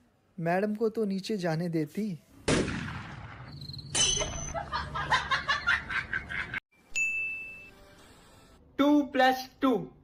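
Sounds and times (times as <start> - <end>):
rhythmic laughter: 4.5 - 6.6.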